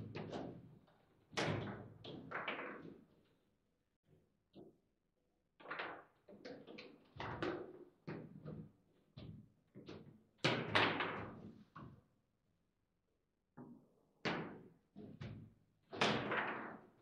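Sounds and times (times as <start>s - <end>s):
table football knocks and clacks: 1.4s - 3.1s, 5.6s - 11.9s, 13.6s - 16.9s.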